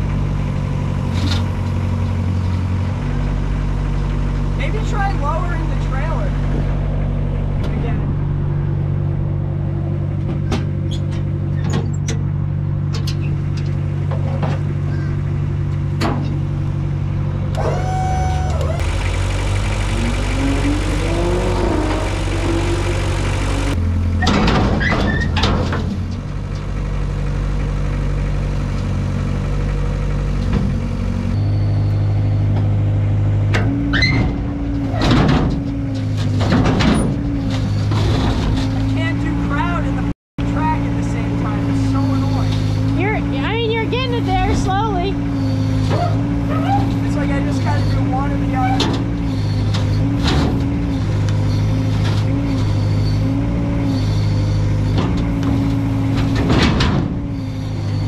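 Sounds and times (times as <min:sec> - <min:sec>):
excavator engine running: 0:00.0 - 0:58.0
knocks and metal clanks: 0:07.4 - 0:15.0, 0:15.7 - 0:16.5, 0:24.2 - 0:26.7, 0:33.5 - 0:39.0, 0:48.6 - 0:51.2, 0:54.8 - 0:57.5.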